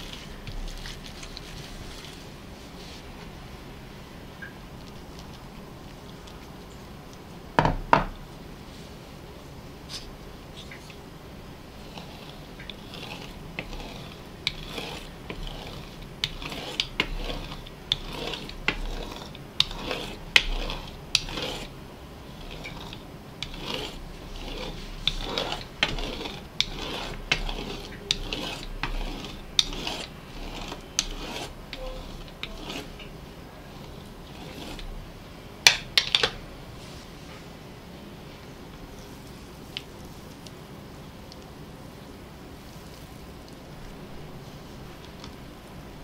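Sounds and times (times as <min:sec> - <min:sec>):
cutter scraping through dough: 0:00.0 - 0:03.2, 0:09.9 - 0:37.4.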